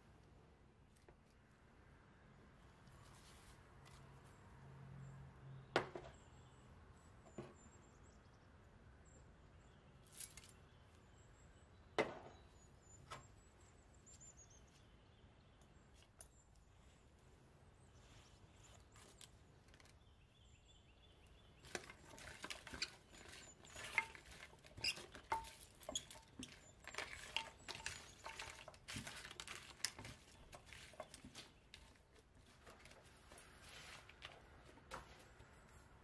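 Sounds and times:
tongs tossing wet vegetables: 0:21.6 - 0:32.0.

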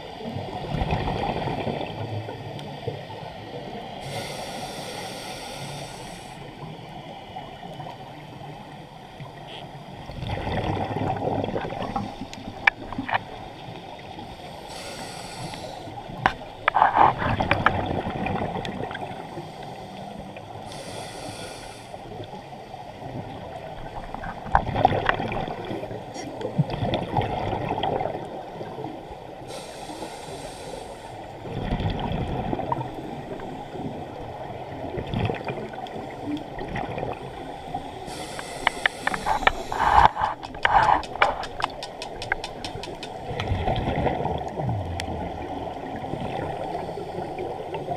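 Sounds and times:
exhaled bubbles gurgling: 0:00.0 - 0:04.6, 0:09.2 - 0:14.3, 0:15.6 - 0:19.4, 0:22.1 - 0:29.5, 0:31.2 - 0:47.9
regulator inhale hiss: 0:04.0 - 0:06.6, 0:14.2 - 0:16.2, 0:19.1 - 0:22.2, 0:29.4 - 0:31.3, 0:37.3 - 0:41.2, 0:46.7 - 0:47.9
sharp clicks: 0:38.6 - 0:43.2.

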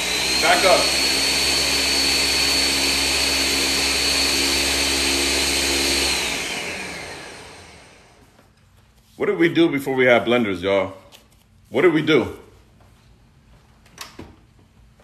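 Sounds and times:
blender motor whine: 0:00.0 - 0:08.3.

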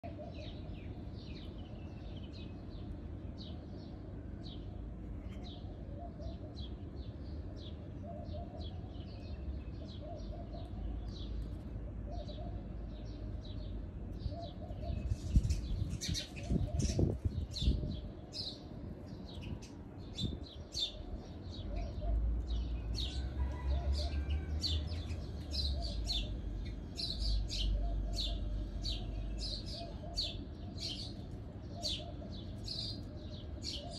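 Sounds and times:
bird chirping: 0:12.1 - 0:33.9.

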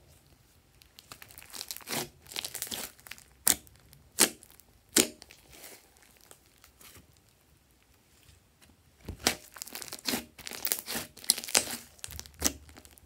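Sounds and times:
slime squishing and crackling: 0:00.8 - 0:07.4, 0:09.0 - 0:13.0
air pockets popping in slime: 0:09.0 - 0:13.0.

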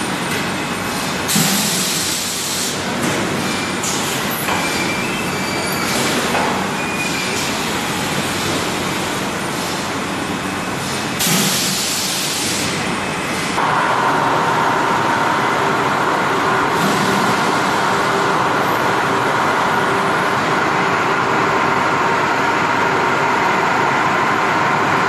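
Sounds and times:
machinery running: 0:05.9 - 0:25.0.

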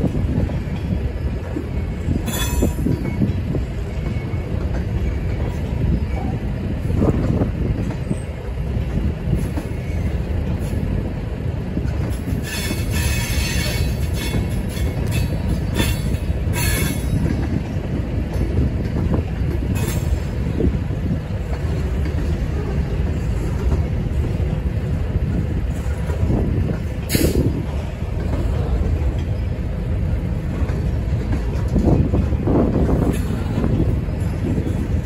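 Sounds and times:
train wheels rumbling on rail: 0:00.0 - 0:35.0
high wheel squeal: 0:12.4 - 0:17.2.

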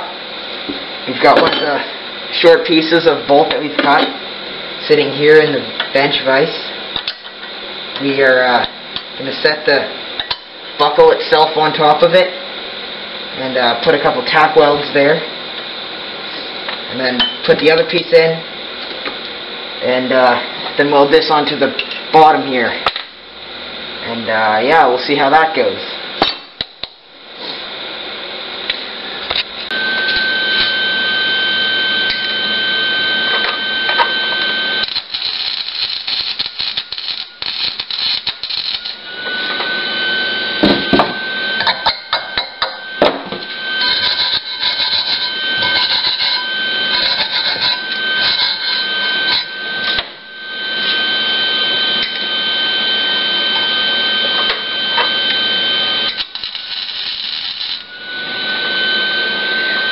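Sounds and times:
steady high whine: 0:00.0 - 0:59.9
welding arc crackling: 0:33.9 - 0:39.2, 0:43.5 - 0:50.0, 0:56.0 - 0:58.0.

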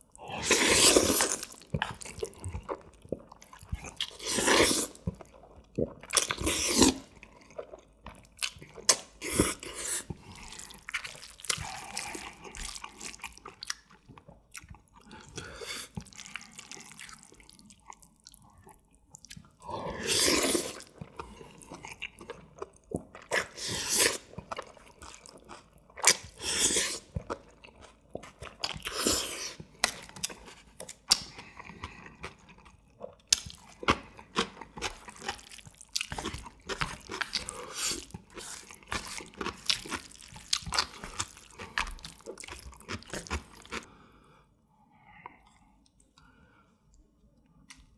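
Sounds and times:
man slurping noodles: 0:00.3 - 0:01.5, 0:06.4 - 0:07.1, 0:19.9 - 0:20.8
wet chewing: 0:00.3 - 0:43.9.

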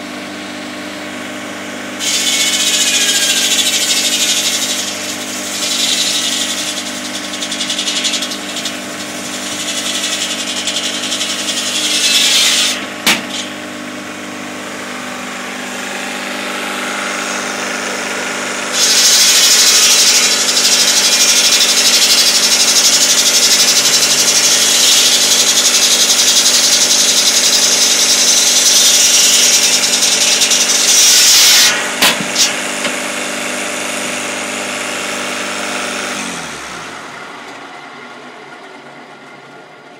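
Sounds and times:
circular saw cutting logs: 0:00.0 - 0:38.1
sharp knocks: 0:13.0 - 0:13.5.

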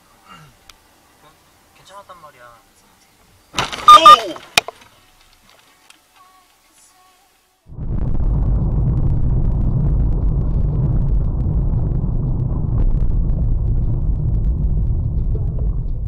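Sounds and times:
car engine and road noise: 0:07.6 - 0:16.0.

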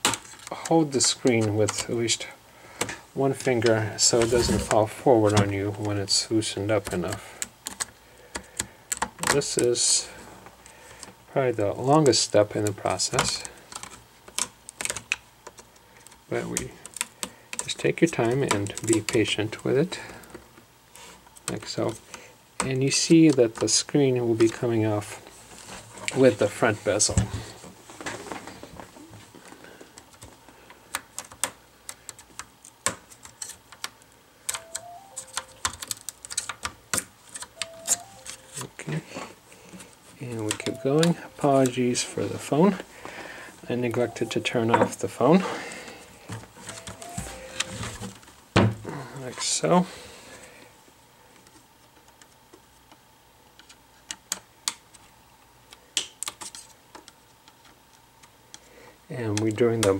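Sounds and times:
phone ringtone: 0:34.5 - 0:35.7, 0:37.6 - 0:38.6, 0:40.6 - 0:41.7, 0:44.0 - 0:44.9, 0:46.7 - 0:48.0.

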